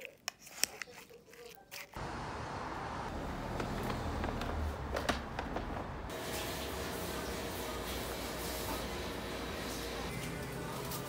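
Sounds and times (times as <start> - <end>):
rumbling vehicle noise: 2.0 - 6.1.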